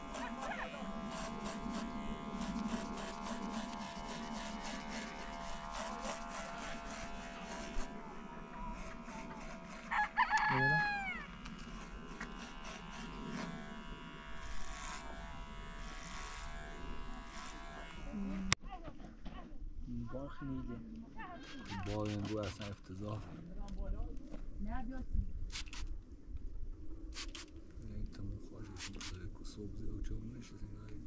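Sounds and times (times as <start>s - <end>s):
electric hair clippers buzzing: 0.0s - 18.6s, 21.5s - 22.7s, 27.2s - 27.5s
rooster crowing: 9.8s - 11.4s.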